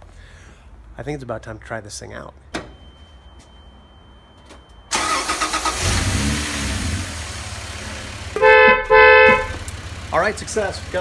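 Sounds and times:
car engine starting and idling: 4.8s - 11.0s
car horn blast: 8.3s - 9.7s.

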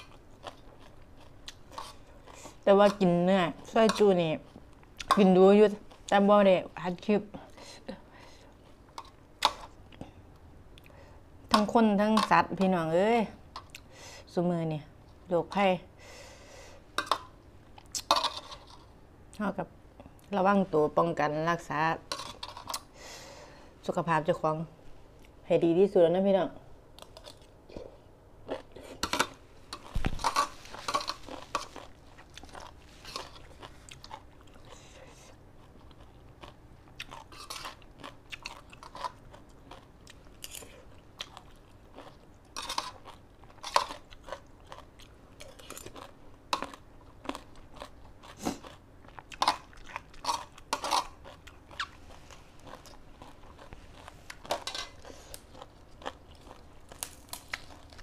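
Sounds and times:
person chewing and crunching: 0.0s - 6.2s, 27.0s - 58.0s.

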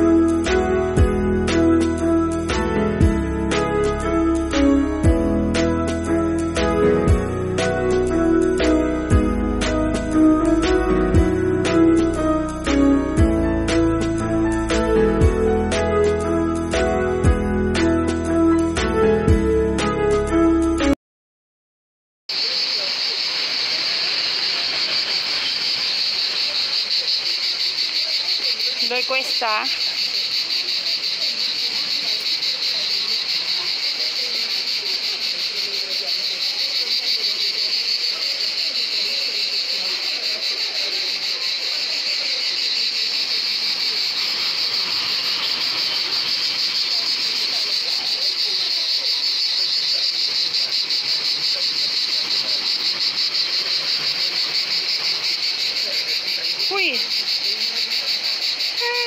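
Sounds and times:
cicadas buzzing: 22.3s - 59.0s.

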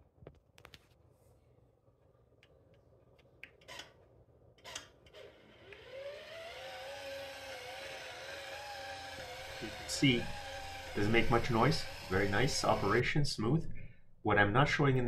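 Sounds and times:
roller shade motor whine: 5.2s - 13.0s.

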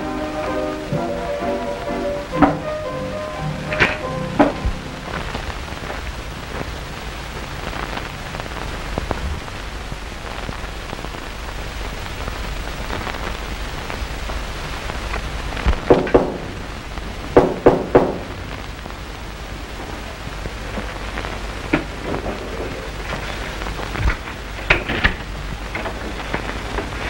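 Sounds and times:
steady hiss: 0.0s - 27.0s
knocking on a door: 17.4s - 18.2s.

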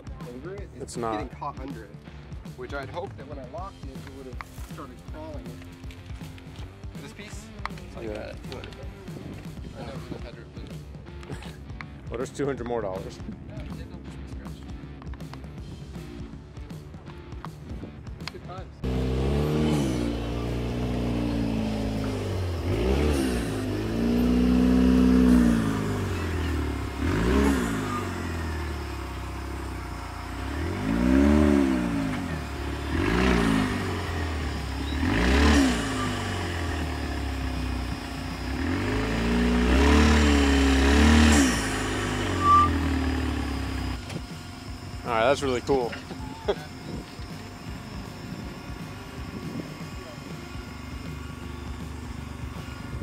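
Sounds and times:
engine revving: 18.2s - 53.0s.

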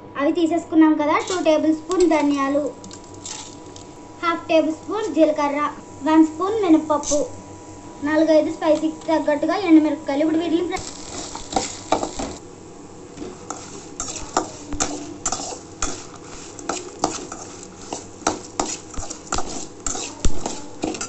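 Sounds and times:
metal spoon scraping a steel pan: 13.5s - 21.0s.

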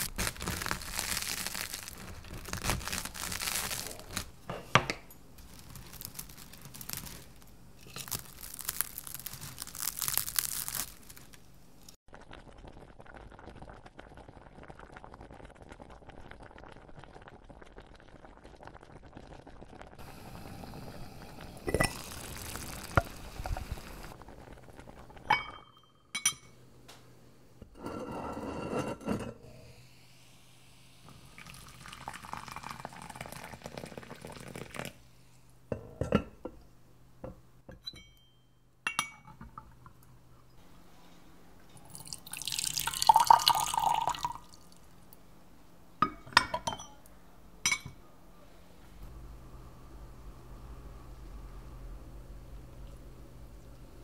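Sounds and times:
hot water pouring: 0.0s - 4.4s, 12.1s - 25.4s, 29.8s - 35.0s, 41.8s - 44.8s
porcelain cups and lids clinking: 21.7s - 22.1s, 46.0s - 47.0s.

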